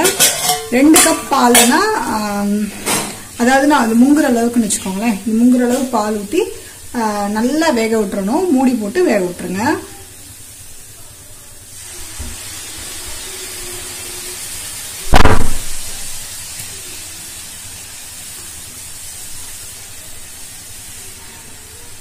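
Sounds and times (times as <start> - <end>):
carrots sizzling in a pan: 0.0 - 22.0
loud thump: 15.1 - 15.9.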